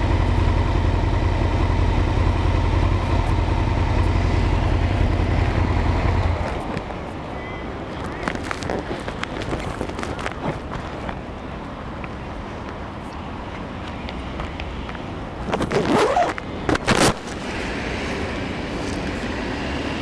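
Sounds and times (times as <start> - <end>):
street traffic noise: 0.0 - 20.0.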